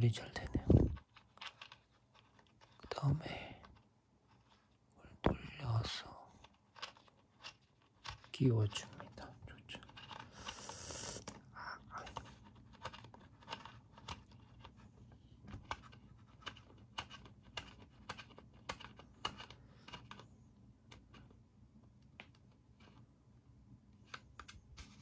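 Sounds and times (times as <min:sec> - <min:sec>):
plastic clicks and scrapes: 0:00.3 - 0:04.8, 0:06.4 - 0:21.4.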